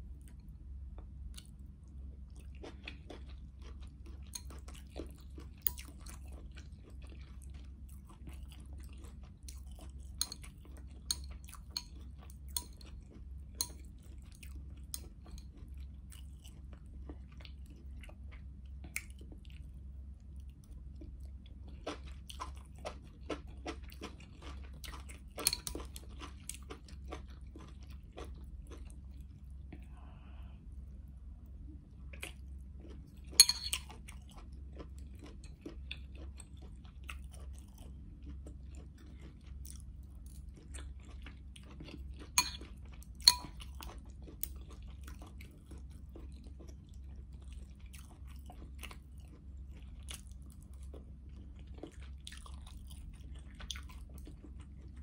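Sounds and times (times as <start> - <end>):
close chewing and biting: 0.1 - 19.8, 20.4 - 30.3, 32.0 - 55.0
low hum: 27.4 - 35.5.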